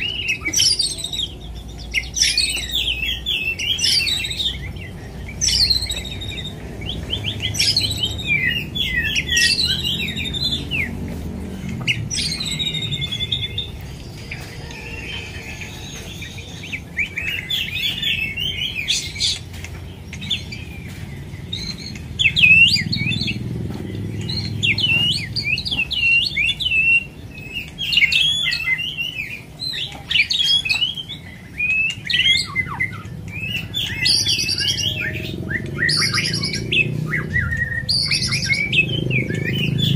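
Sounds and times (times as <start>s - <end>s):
bird singing whistled phrases: 0.0s - 11.0s, 24.2s - 39.9s.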